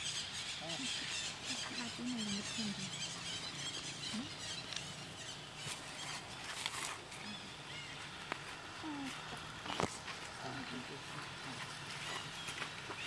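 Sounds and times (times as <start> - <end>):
baby monkey squeaking: 0.0 - 6.2
steady background hiss: 0.0 - 13.0.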